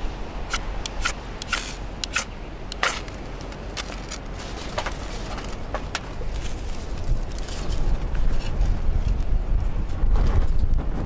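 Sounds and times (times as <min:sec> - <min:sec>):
wind noise on microphone: 0:04.2 - 0:11.0.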